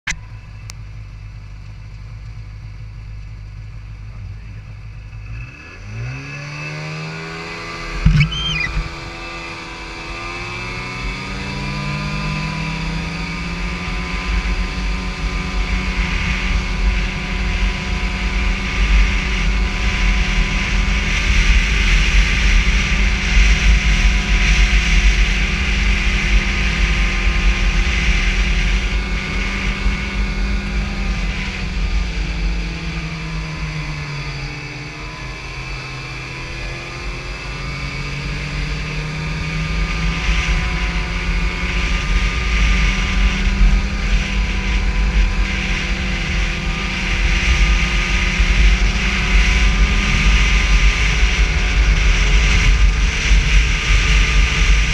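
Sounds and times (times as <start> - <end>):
snowmobile engine: 3.8 - 54.9
sharp knock: 8.1 - 8.9.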